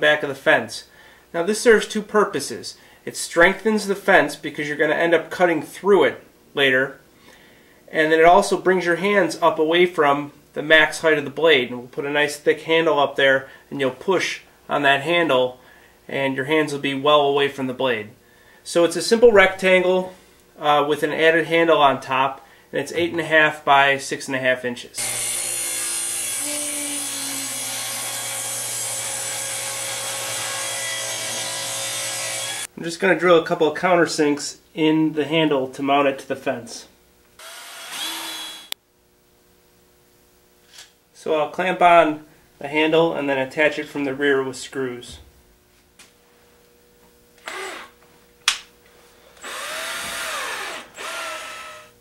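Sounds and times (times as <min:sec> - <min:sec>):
cordless drill whirring: 0:25.0 - 0:32.7, 0:37.4 - 0:38.8, 0:47.4 - 0:48.0, 0:49.4 - 0:52.0
table saw cutting board: 0:25.0 - 0:32.7, 0:37.4 - 0:38.8, 0:49.4 - 0:52.0.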